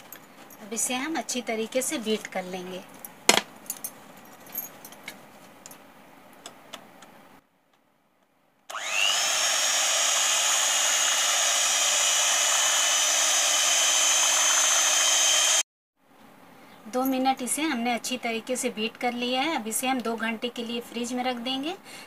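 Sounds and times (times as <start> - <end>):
electric hand mixer whining: 8.7 - 15.6.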